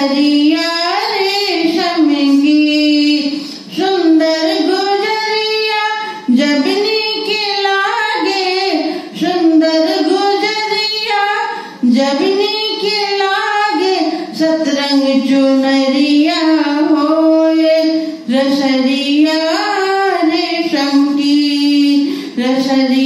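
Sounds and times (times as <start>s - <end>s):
woman singing folk song: 0.0s - 23.0s.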